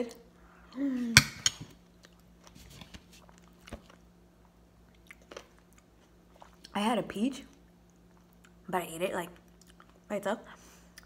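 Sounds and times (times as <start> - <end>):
quiet chewing: 1.9 - 6.8, 9.4 - 10.1.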